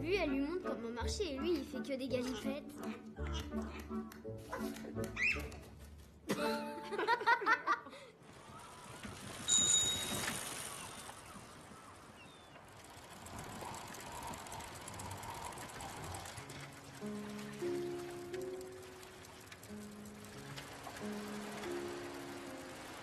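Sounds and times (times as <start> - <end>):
music: 0.0 - 7.1, 16.3 - 23.0
airy outdoor hiss: 12.8 - 23.0.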